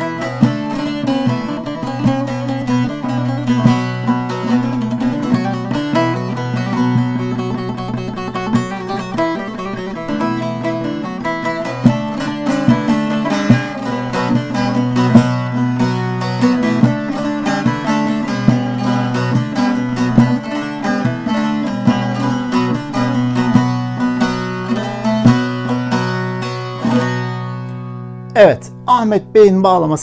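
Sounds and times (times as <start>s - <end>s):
picked folk melody on lute: 0.0s - 29.0s
ringing lower strings: 0.0s - 29.2s.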